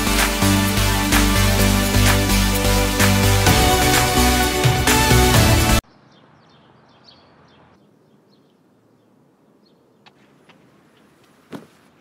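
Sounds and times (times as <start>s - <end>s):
faint bird chirps: 5.8s - 11.2s.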